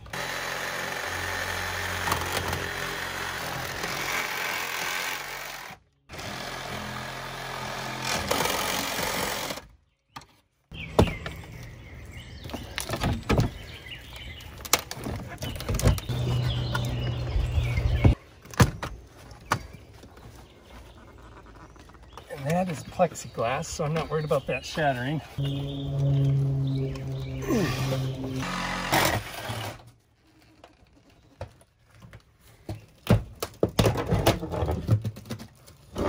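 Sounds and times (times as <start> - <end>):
reciprocating saw cutting: 26.2 - 29.8.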